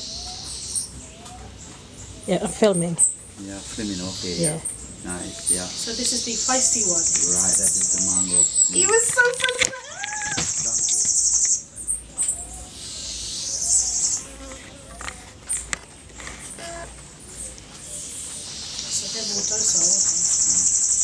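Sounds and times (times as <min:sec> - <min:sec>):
insect buzzing trill: 0:03.0 - 0:09.6, 0:13.1 - 0:15.7.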